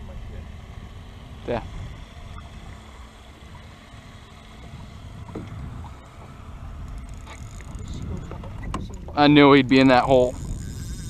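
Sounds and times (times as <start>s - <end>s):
wind rumble on microphone: 4.6s - 11.0s.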